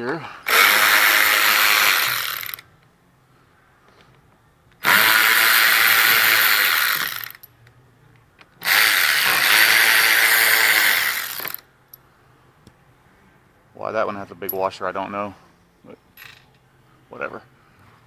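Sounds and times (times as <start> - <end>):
electric ratchet motor whine: 0.5 - 2.6, 4.8 - 7.4, 8.6 - 11.6.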